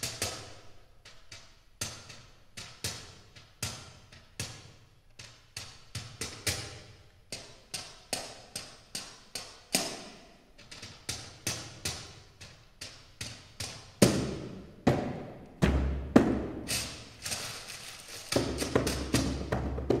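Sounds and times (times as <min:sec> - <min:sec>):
paper cracks as percussion: 0:16.2 - 0:20.0.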